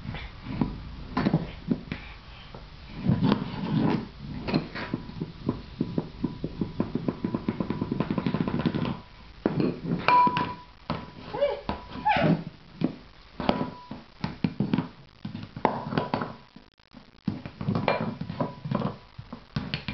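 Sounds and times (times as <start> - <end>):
ceramic bowl clattering on tile floor: 6.8 - 11.1.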